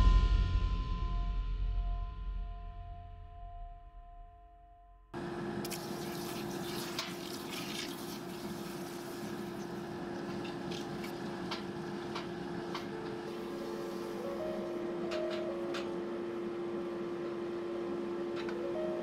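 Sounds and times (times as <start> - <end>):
hot steel sizzling in water: 5.6 - 9.8.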